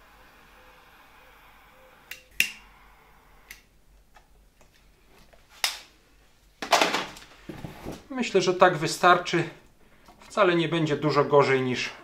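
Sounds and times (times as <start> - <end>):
rustling and scraping: 6.6 - 8.1.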